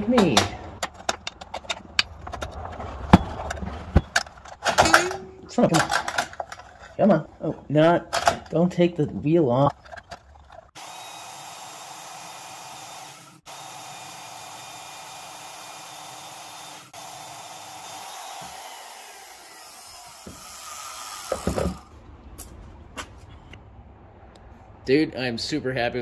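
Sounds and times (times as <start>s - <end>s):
bandsaw cutting metal: 10.8s - 21.9s.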